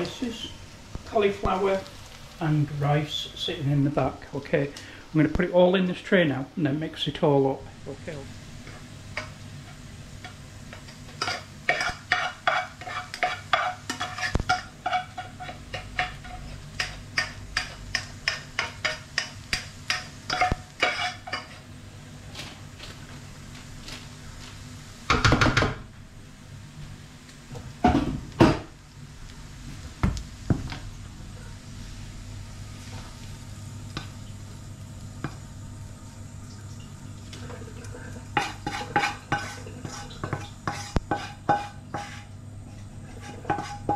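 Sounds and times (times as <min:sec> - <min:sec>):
wooden spoon scraping a pan: 0:08.6 - 0:21.7, 0:38.4 - 0:43.9
spoon scraping a saucepan: 0:11.1 - 0:19.3, 0:20.3 - 0:21.6, 0:38.4 - 0:42.3, 0:43.0 - 0:43.9.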